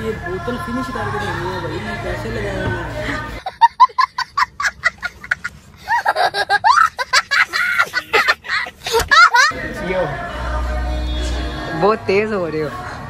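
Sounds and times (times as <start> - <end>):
boy laughing: 3.3 - 9.5.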